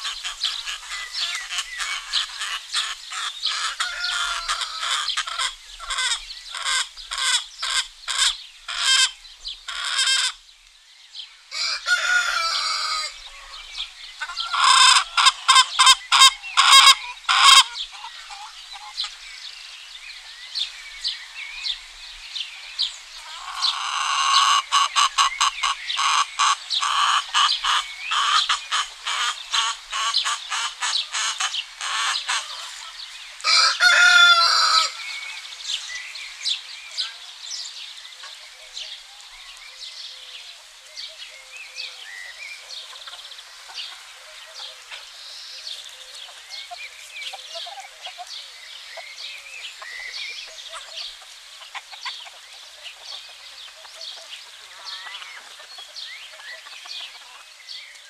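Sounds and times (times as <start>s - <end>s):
chickens clucking: 0.0s - 10.4s, 11.5s - 19.6s, 21.7s - 37.4s, 41.4s - 58.0s
rooster crowing: 3.6s - 5.4s, 11.5s - 13.8s, 33.4s - 35.2s.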